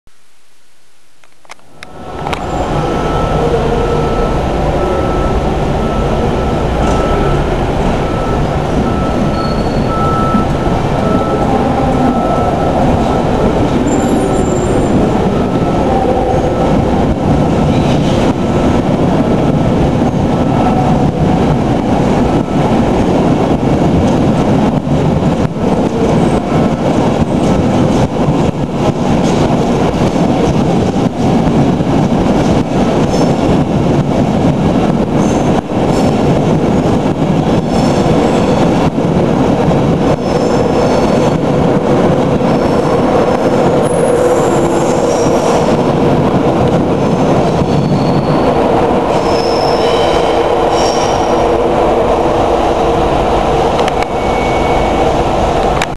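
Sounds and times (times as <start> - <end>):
train wheels rumbling on rail: 1.2 - 55.9
high wheel squeals: 8.1 - 15.8, 47.4 - 51.5, 54.0 - 55.1.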